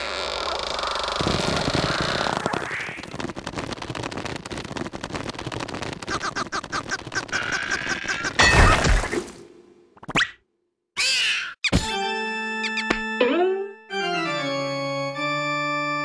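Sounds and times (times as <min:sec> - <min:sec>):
squeaky cartoon vocal cries: 0:11.0 - 0:11.7.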